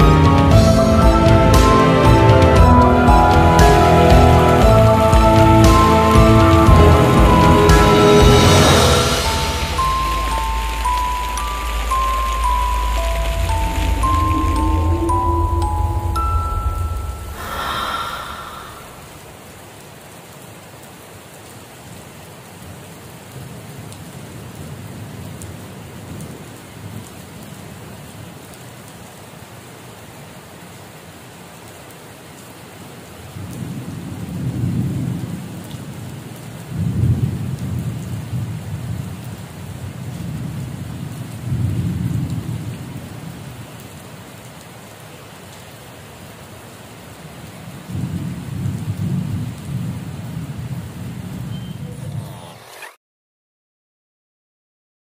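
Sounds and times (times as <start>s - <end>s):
thunder rumbling: 0.0s - 19.4s, 36.7s - 43.6s
rain hissing on wet ground: 0.0s - 52.7s.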